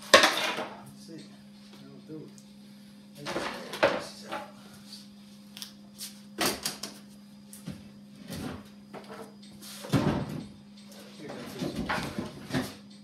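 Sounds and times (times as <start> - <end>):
parts knocking and clattering: 11.2 - 13.0.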